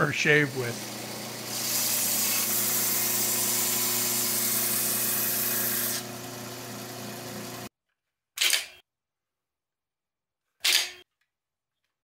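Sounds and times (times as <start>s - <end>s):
belt sander motor hum: 0.2s - 7.7s.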